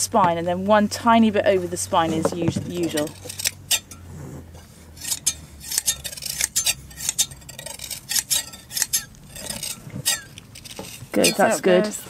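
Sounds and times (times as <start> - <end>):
shears snipping fleece: 5.0 - 11.9.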